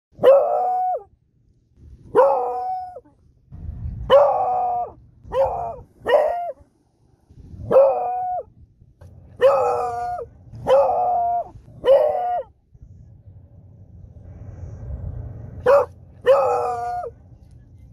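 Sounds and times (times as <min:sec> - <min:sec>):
dog howling: 0:09.4 - 0:12.5, 0:15.7 - 0:17.1.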